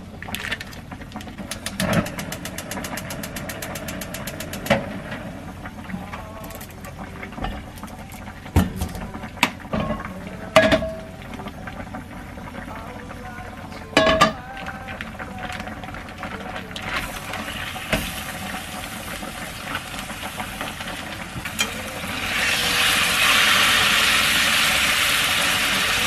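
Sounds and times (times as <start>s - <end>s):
frying pan clanking on stove: 1.4s - 4.9s, 14.0s - 14.4s
gas stove igniter clicking: 1.5s - 4.8s.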